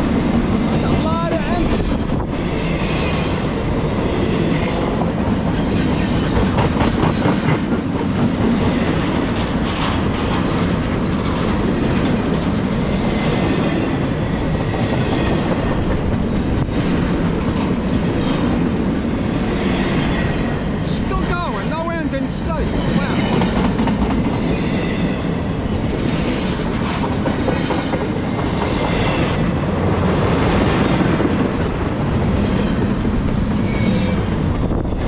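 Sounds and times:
wheels clacking over rail joints: 0:00.0 - 0:21.8, 0:22.7 - 0:35.0
train wheels rumbling on rail: 0:00.0 - 0:35.0.

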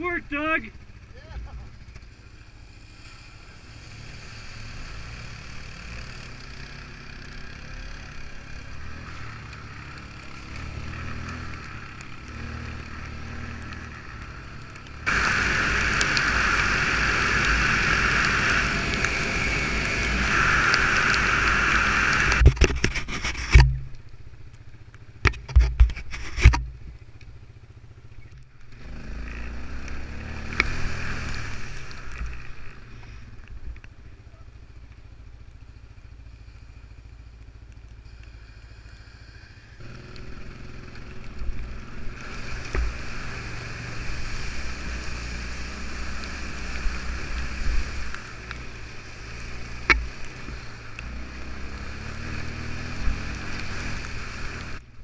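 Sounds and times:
atv engine running: 0:00.0 - 0:55.0
sharp knocks and clatters: 0:25.2 - 0:26.8.

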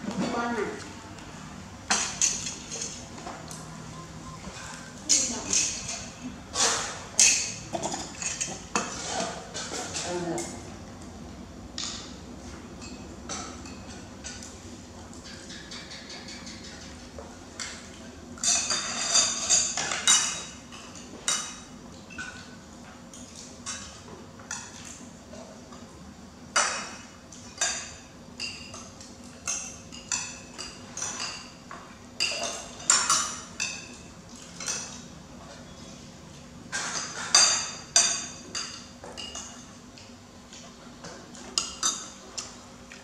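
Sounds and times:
spoons clinking on ceramic plates: 0:01.9 - 0:03.0, 0:27.5 - 0:34.0, 0:36.7 - 0:39.8.

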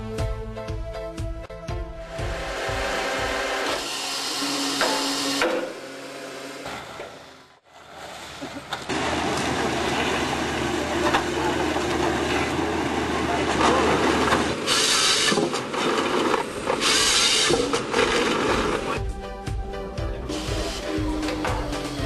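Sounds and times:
engine humming: 0:04.4 - 0:22.0
rollers grinding and scraping log: 0:07.9 - 0:19.0.

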